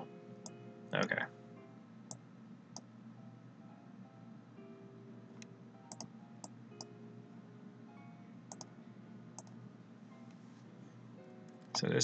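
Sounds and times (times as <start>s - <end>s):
faint background music: 0.0s - 12.0s
computer mouse clicks: 5.9s - 6.1s, 8.5s - 8.7s, 9.4s - 9.6s.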